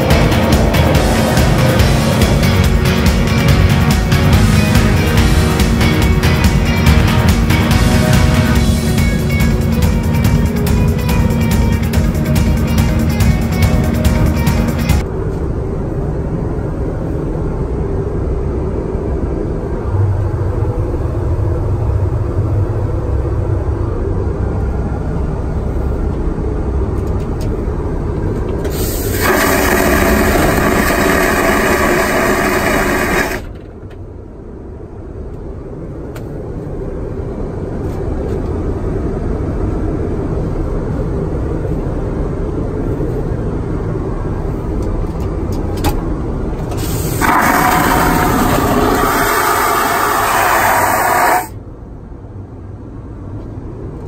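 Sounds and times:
vacuum toilet suction whoosh: 0.0 - 5.8, 28.7 - 33.5, 46.7 - 51.6
aircraft cabin drone: 0.0 - 54.0.

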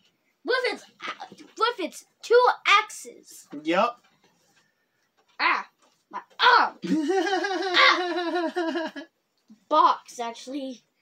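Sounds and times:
person crying out: 6.8 - 8.6.

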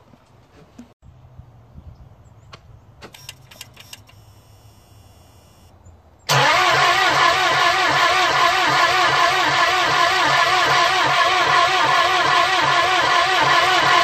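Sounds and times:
diesel engine cranking: 6.3 - 14.0.

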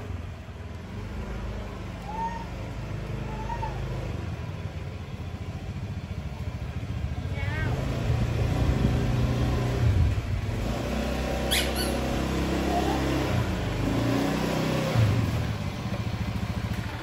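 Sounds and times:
scooter engine running: 2.7 - 17.0
brief high squeak: 11.5 - 12.1.

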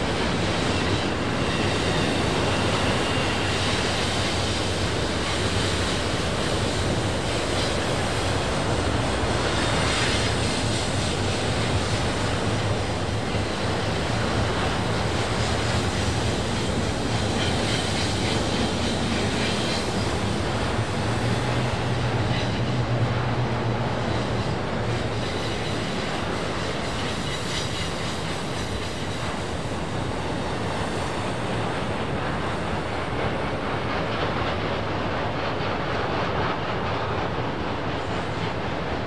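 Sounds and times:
train rolling past: 0.0 - 39.0.

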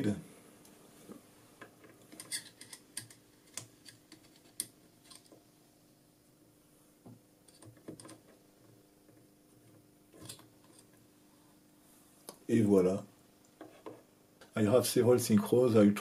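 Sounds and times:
screwdriver clicks and scrapes on metal: 1.9 - 5.4, 7.5 - 8.3, 10.1 - 11.0.

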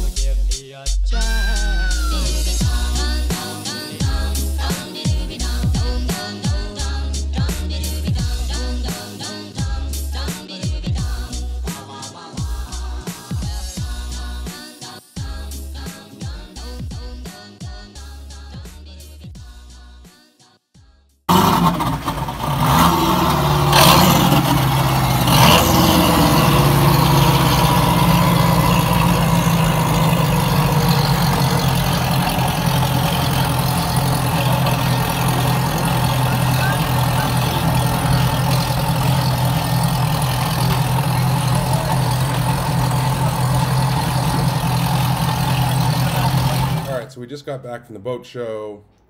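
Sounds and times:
outboard motors idling: 21.3 - 47.0.

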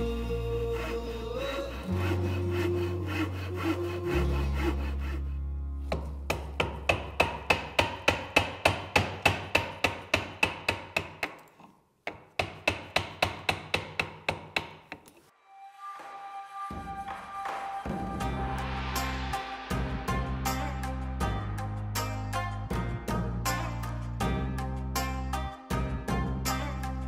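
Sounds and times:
hand saw cutting wood: 0.3 - 11.7.

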